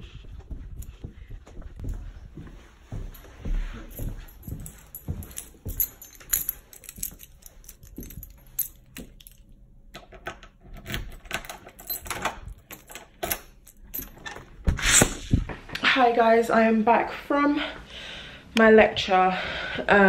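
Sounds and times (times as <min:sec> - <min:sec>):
footsteps on tiled floor: 0:00.0 - 0:09.4
keys jangling: 0:03.0 - 0:14.5
key clicking in door lock: 0:05.8 - 0:14.4.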